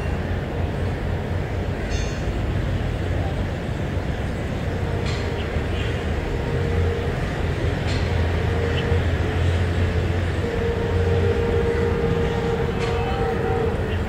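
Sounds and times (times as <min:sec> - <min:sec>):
locomotive engine drone: 0:00.0 - 0:14.0
mid-pitched whine: 0:04.2 - 0:14.0.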